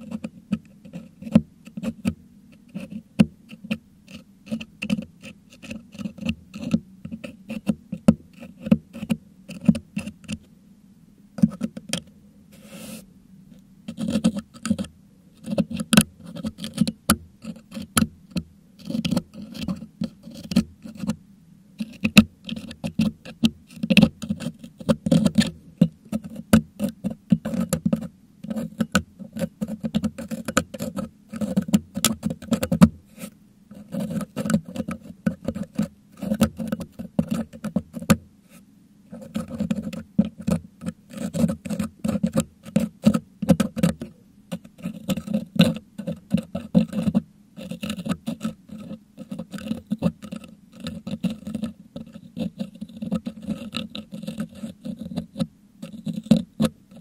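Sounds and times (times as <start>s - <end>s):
metal hook scraping microphone grille: 39.1s - 57.0s.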